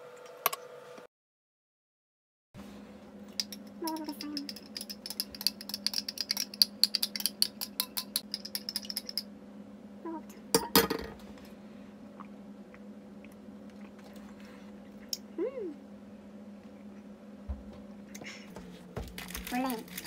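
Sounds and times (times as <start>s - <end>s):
stirrer clinking against glass: 3.4s - 9.2s
object set down clatter: 10.6s - 11.2s.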